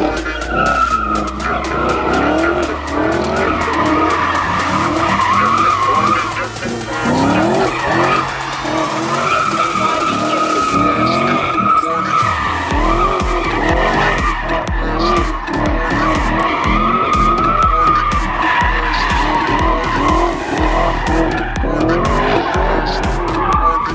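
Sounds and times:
car engine revving: 0.0 - 23.9
tyres squealing: 0.0 - 23.9.

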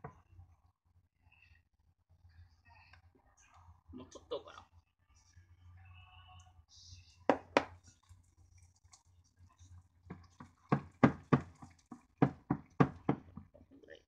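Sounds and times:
hands squelching wet meat mixture: 7.8 - 13.4.

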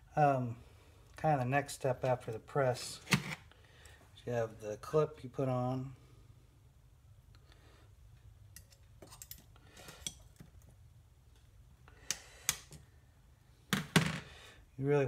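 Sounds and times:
small metallic clicks and scrapes: 8.5 - 10.7.

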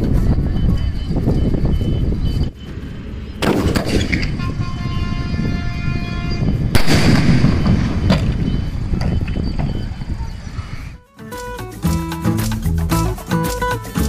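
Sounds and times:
explosive blasts: 2.7 - 4.6, 6.7 - 9.2
steady horn-like tone: 4.3 - 6.7.

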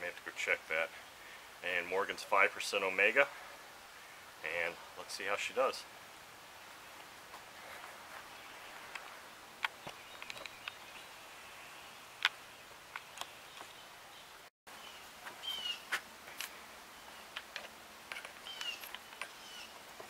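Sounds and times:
birds chirping: 6.6 - 16.0, 18.2 - 20.0.

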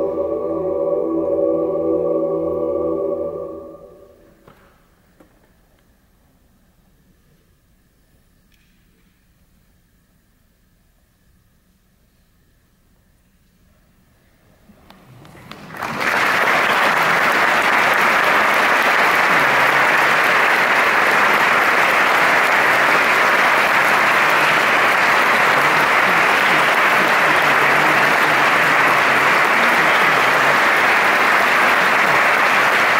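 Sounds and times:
audience applause: 15.1 - 32.9.

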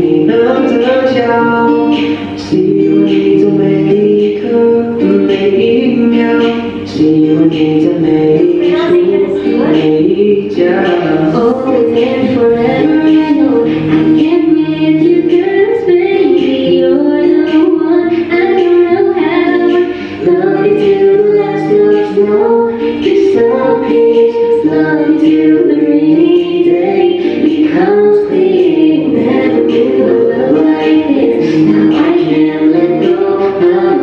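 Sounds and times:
man singing: 0.0 - 14.4, 19.2 - 34.0
pop backing music: 0.0 - 34.0
woman singing: 0.0 - 34.0.

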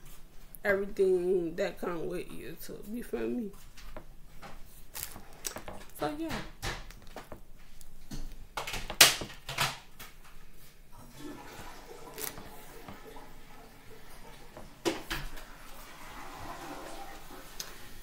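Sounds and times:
faint background noise: 0.0 - 18.0
sharp knocks and clicks: 3.8 - 7.5, 8.1 - 10.2.

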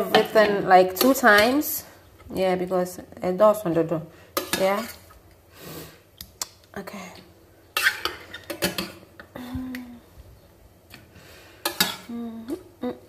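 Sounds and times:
metal spoon scraping pot: 7.8 - 9.0.

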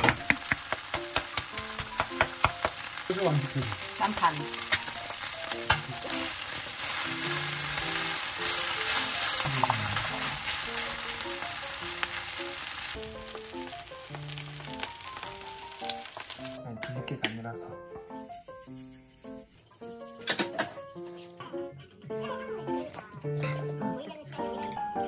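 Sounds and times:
fried rice sizzling in a pan: 0.2 - 16.6.

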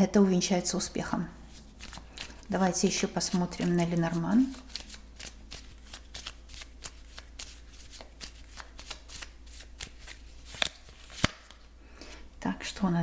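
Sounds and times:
cards being shuffled: 1.5 - 11.7.

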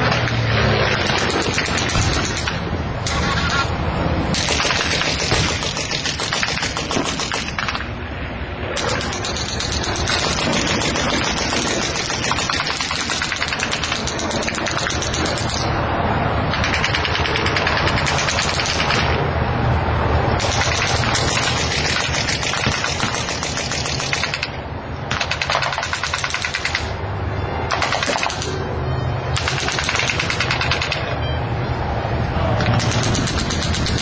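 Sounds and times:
rapid machine-gun fire: 0.9 - 3.5, 4.4 - 7.8, 8.8 - 15.7, 16.5 - 19.2, 20.4 - 24.5, 25.1 - 26.9, 27.7 - 28.6, 29.4 - 31.0, 32.6 - 34.0.

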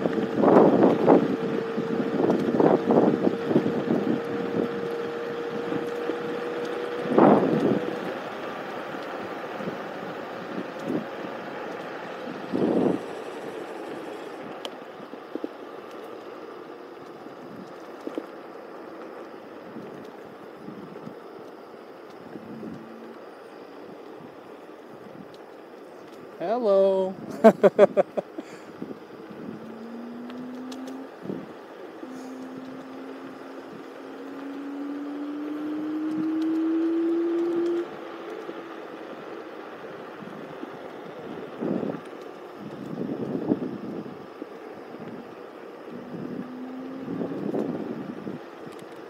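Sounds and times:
wind rushing on microphone: 0.0 - 8.4, 9.2 - 15.6, 22.2 - 23.2, 28.6 - 31.7, 40.0 - 48.8
electric scooter motor whining: 0.0 - 26.6, 27.4 - 49.0
tyre noise on asphalt: 0.0 - 49.0.

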